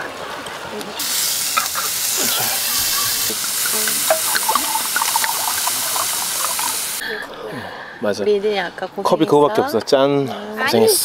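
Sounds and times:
food sizzling in a hot pan: 1.0s - 7.0s.

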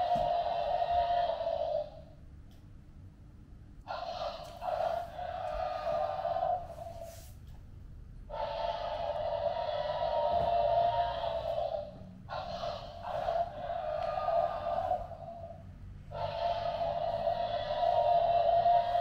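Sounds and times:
dinosaur roars: 3.9s - 7.1s, 8.3s - 19.0s.

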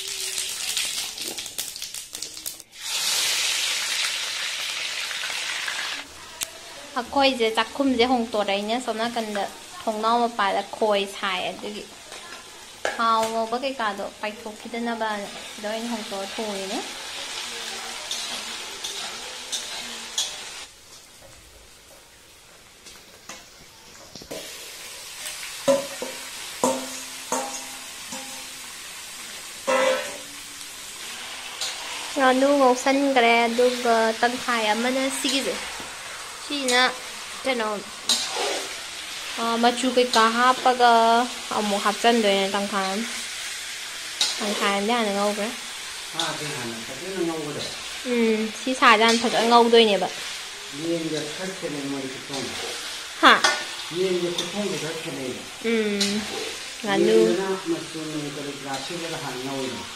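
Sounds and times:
frying hiss: 0.0s - 59.9s
spices crackling in hot oil: 0.0s - 59.9s
metal spatula scraping wok: 15.2s - 20.7s, 29.6s - 32.3s, 33.1s - 40.8s, 41.5s - 48.0s, 48.9s - 55.2s, 56.0s - 57.4s.

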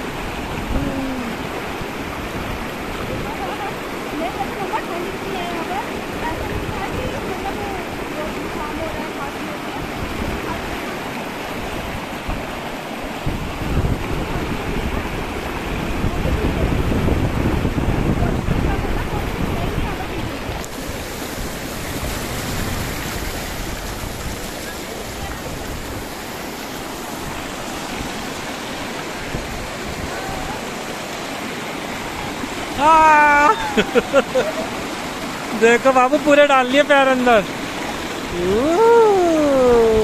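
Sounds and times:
wind buffeting microphone: 0.0s - 31.3s
river rushing over rocks: 0.0s - 40.0s.

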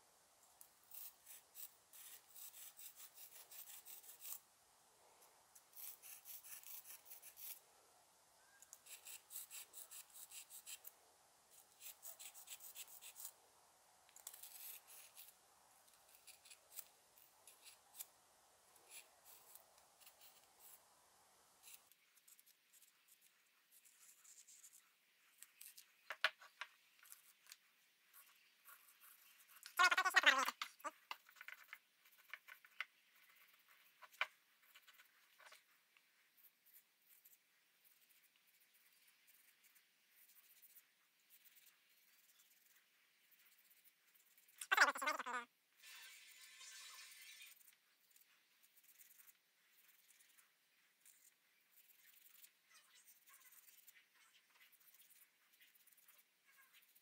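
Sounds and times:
charcoal scratching on stone: 0.9s - 4.4s, 5.6s - 7.6s, 8.6s - 10.9s, 11.5s - 13.4s, 14.1s - 18.1s, 18.8s - 20.9s, 28.2s - 35.7s, 44.4s - 50.4s.

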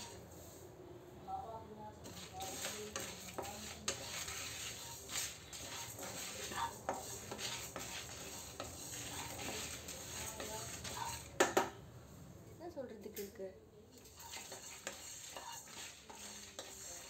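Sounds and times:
spatula stirring seeds in a pan: 0.0s - 0.6s, 2.0s - 11.6s, 13.9s - 17.0s
light sizzle: 2.0s - 11.4s, 13.1s - 17.0s.

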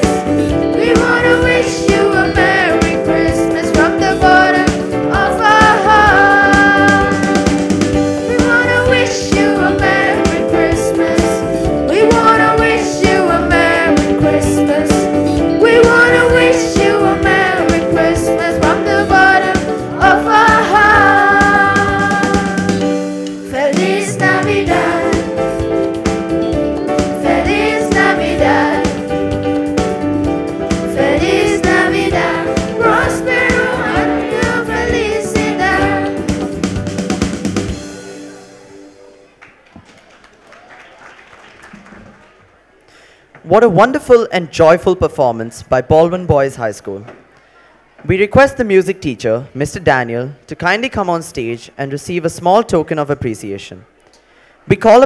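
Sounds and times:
keyboard: 0.0s - 39.8s
instrumental accompaniment: 0.0s - 39.9s
boys' choir singing: 0.8s - 7.4s, 15.6s - 22.8s, 23.4s - 25.5s, 27.2s - 29.0s, 30.9s - 36.3s.

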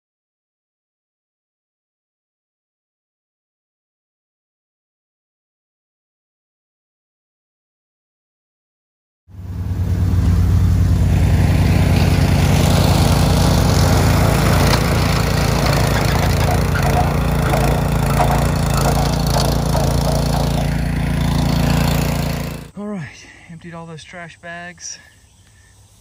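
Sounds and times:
vehicle and mower engines running: 9.3s - 25.1s
mower blades chopping brush: 9.4s - 22.8s.

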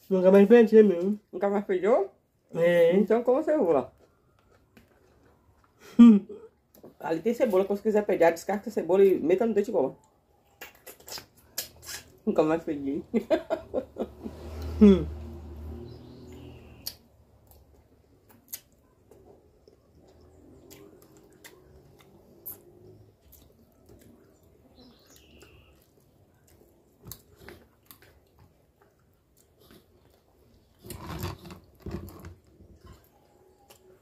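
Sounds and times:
chewing: 3.8s - 5.9s, 10.0s - 12.2s, 16.3s - 34.0s.

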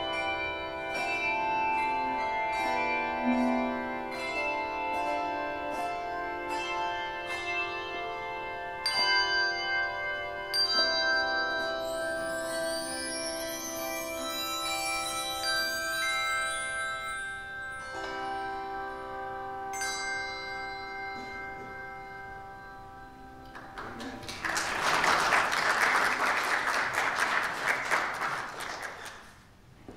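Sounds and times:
handbell choir ringing chords: 0.0s - 23.8s
applause: 23.5s - 29.5s.

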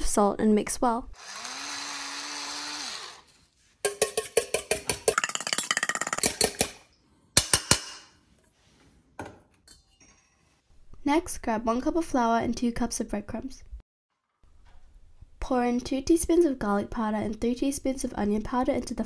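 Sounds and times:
electric grinder whirring: 1.2s - 3.4s.

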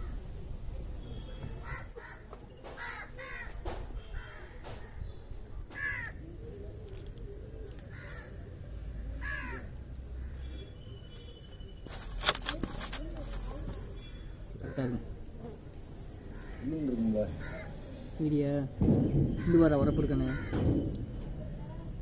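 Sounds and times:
crows cawing: 1.6s - 2.2s, 2.8s - 3.6s, 5.7s - 6.2s, 7.7s - 10.5s, 14.6s - 15.1s, 16.2s - 17.8s, 20.2s - 20.7s
sharp knock: 18.8s - 19.5s.

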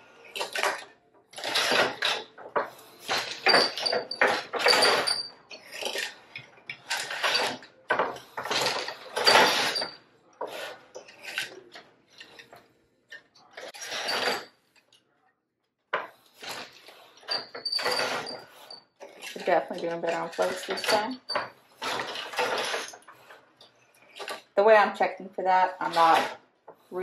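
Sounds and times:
loom clunking and clattering: 0.0s - 12.6s, 13.4s - 14.5s, 16.0s - 23.4s.

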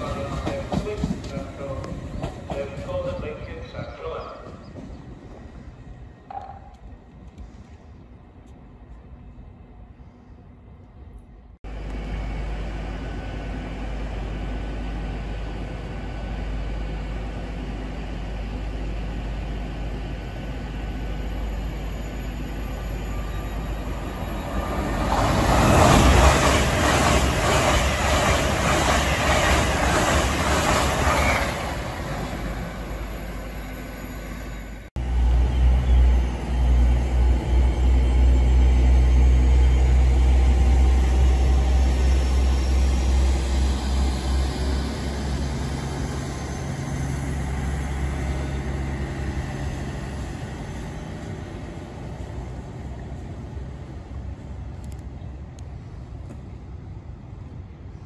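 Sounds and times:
train wheel clatter: 0.0s - 3.6s
high-speed train rushing past: 0.0s - 58.0s.

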